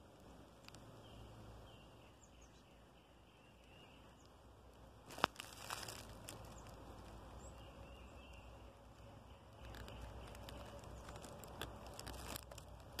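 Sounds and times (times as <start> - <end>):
dry grass rustling: 4.7 - 13.0.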